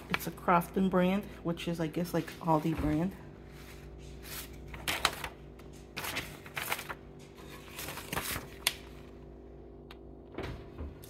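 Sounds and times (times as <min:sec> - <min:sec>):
steady low hum: 0:00.0 - 0:11.0
paper rustling and crinkling: 0:02.2 - 0:09.2.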